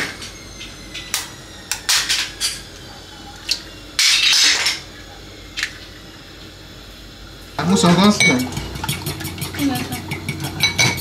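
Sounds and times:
utensils clattering against dishes: 1.0 - 3.4, 4.0 - 4.9, 7.6 - 11.0.

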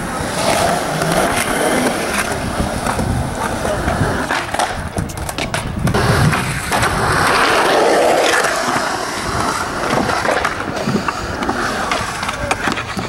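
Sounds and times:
skateboard clacks: 0.0 - 13.0
skateboard wheels rolling on concrete: 0.0 - 13.0.

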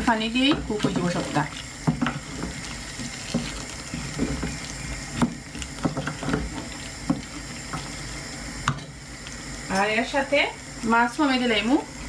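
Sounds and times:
simmering pot hissing: 0.0 - 12.0
wooden spoon knocking pot: 0.4 - 7.9.

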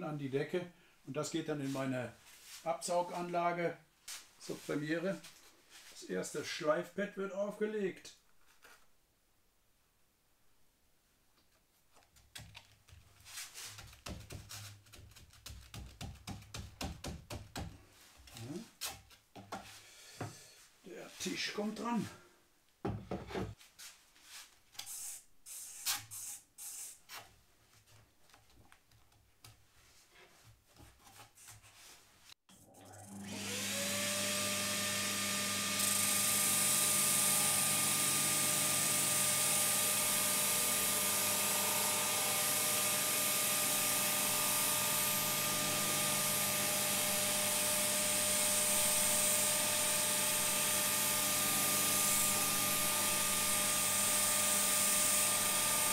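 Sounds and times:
dust extractor hiss: 34.8 - 55.9
disc sander whine: 35.0 - 55.9.

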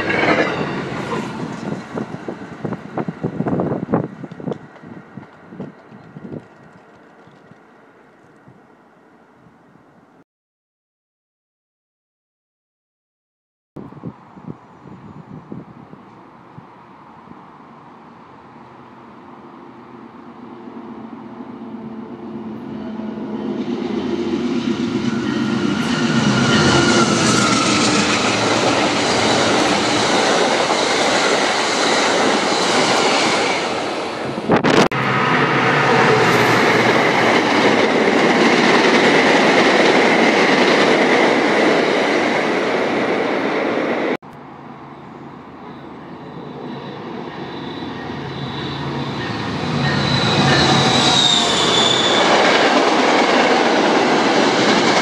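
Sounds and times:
train wheels rushing on rail: 0.0 - 8.6, 19.9 - 44.2, 45.6 - 55.0.

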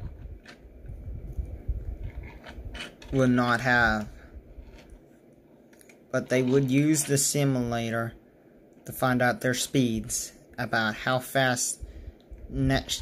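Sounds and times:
toy car rubbing and clicking: 2.0 - 3.2, 6.2 - 7.3.

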